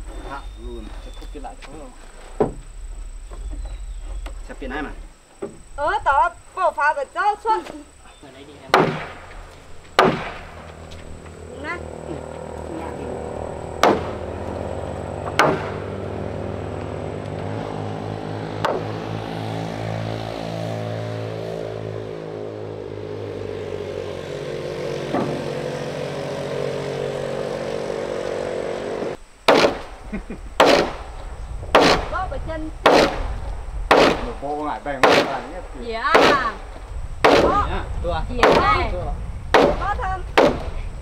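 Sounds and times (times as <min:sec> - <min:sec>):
engine drone: 0:00.0 - 0:41.0
hammer blows on timber: 0:08.7 - 0:11.4, 0:13.6 - 0:14.4, 0:15.2 - 0:16.0, 0:29.0 - 0:29.9, 0:30.6 - 0:32.2, 0:32.8 - 0:34.4, 0:35.0 - 0:35.5, 0:37.2 - 0:37.7, 0:38.4 - 0:38.8, 0:39.5 - 0:40.8.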